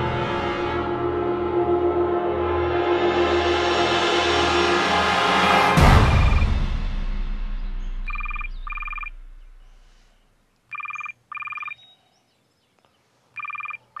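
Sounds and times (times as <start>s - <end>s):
electronic telephone ringing: 8.1s - 9.1s, 10.7s - 11.8s, 13.4s - 14.0s.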